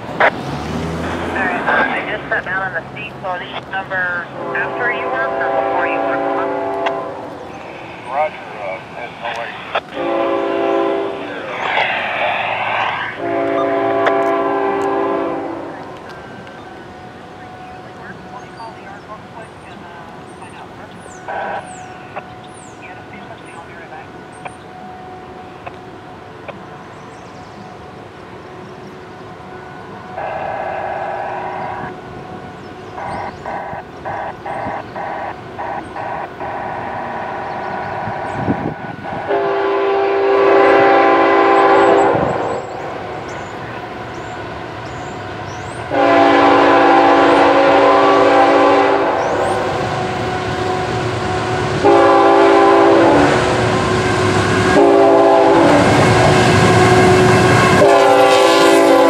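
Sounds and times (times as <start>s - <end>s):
locomotive air horn blasts: 4.2s - 7.3s, 9.8s - 11.3s, 13.2s - 15.9s, 30.0s - 31.9s, 38.1s - 42.6s, 45.9s - 59.0s.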